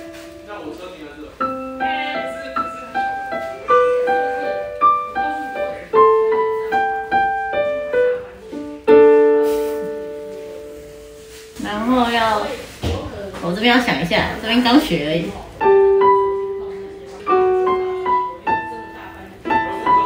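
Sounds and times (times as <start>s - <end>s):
digital piano melody over chords: 0.0s - 11.9s, 15.4s - 20.0s.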